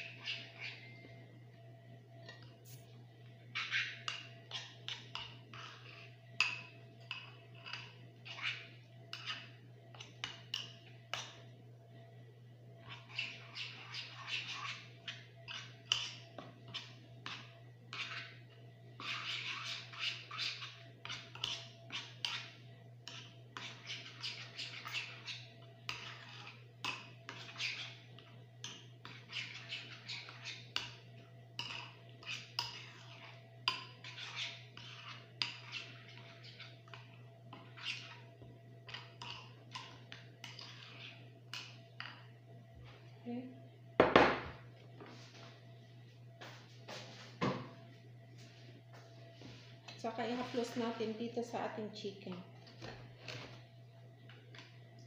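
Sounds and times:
metal spoon scraping a dish: 0.0 - 1.0, 3.5 - 11.4, 12.8 - 18.4, 19.0 - 42.4
steady low hum: 0.0 - 55.0.

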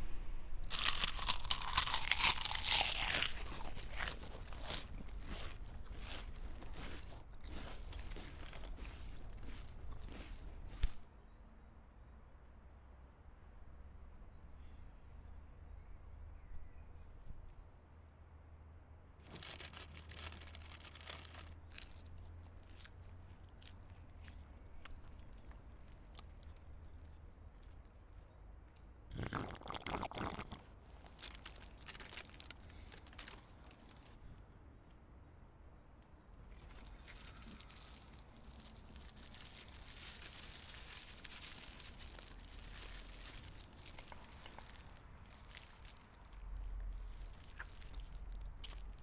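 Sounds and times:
paper wrapper crinkling: 0.7 - 11.0, 19.2 - 22.2, 30.4 - 34.2, 36.6 - 49.0
person chewing crunchily: 0.7 - 11.0, 19.3 - 27.0, 29.1 - 34.1, 36.6 - 49.0.

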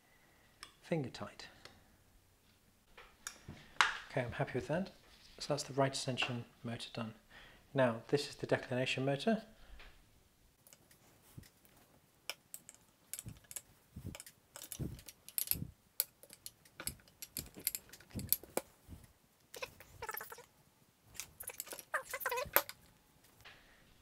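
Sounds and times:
clicks and knocks of handled metal parts: 10.6 - 20.5, 21.1 - 23.5.

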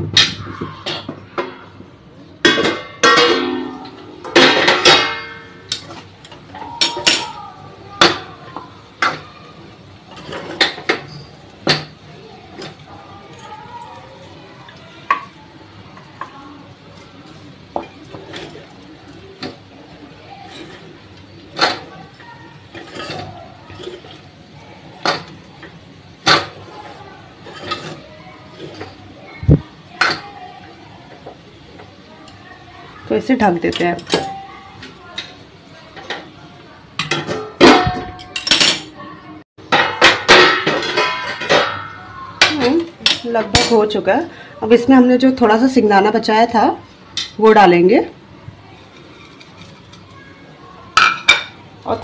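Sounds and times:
metal spatula scraping a pan: 10.1 - 11.4, 20.4 - 24.3, 26.2 - 29.0, 48.7 - 50.1.

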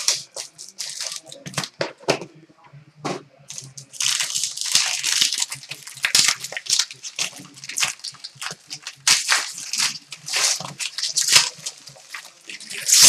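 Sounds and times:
foil wrapper tearing and crinkling: 0.0 - 1.7, 3.5 - 13.0.

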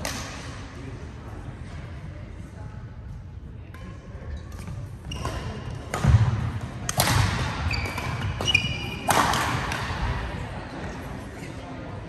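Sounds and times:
shoe squeaks on court floor: 4.3 - 5.6, 7.7 - 9.1
racket striking shuttlecock: 6.9 - 10.1.

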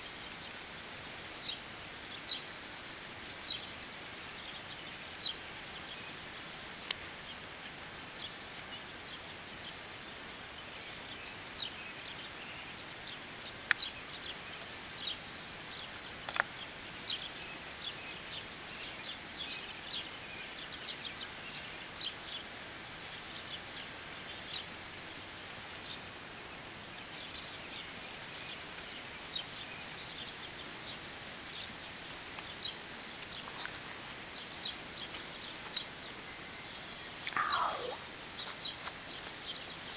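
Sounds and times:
steady hiss: 0.0 - 39.9
constant thin high tone: 35.9 - 38.6
high-pitched chirps: 37.3 - 38.0.

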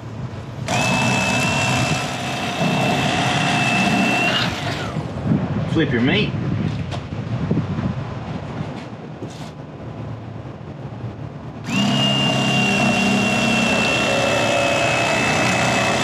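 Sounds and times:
electric fillet knife whining: 0.7 - 5.0, 11.7 - 16.0.

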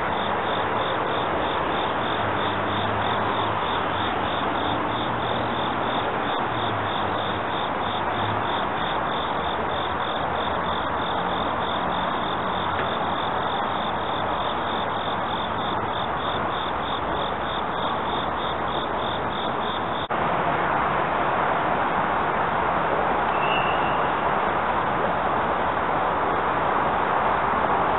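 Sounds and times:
insects chirping: 0.0 - 20.1.

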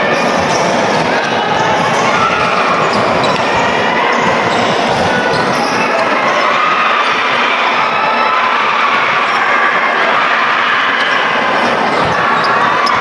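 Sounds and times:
crowd voices din: 0.0 - 13.0
basketball bouncing on court: 0.2 - 5.8, 11.0 - 13.0.

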